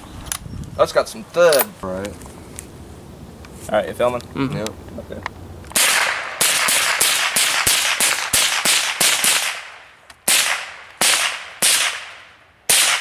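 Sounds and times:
rifle shots: 5.7 - 13.0.

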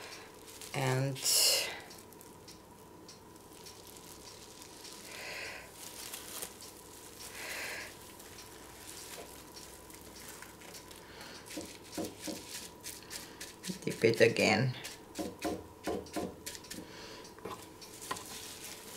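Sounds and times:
bubble wrap crinkling: 0.0 - 14.1, 17.9 - 18.9.

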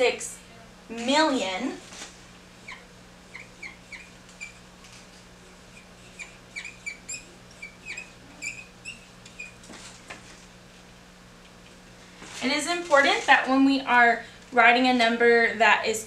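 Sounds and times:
marker squeaking on whiteboard: 2.6 - 4.6, 5.7 - 9.7.

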